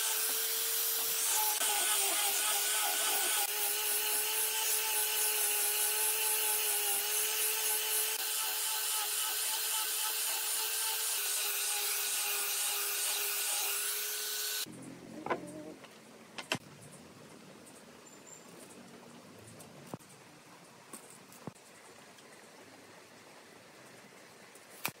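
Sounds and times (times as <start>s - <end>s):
angle grinder sanding wood: 0.0s - 14.7s.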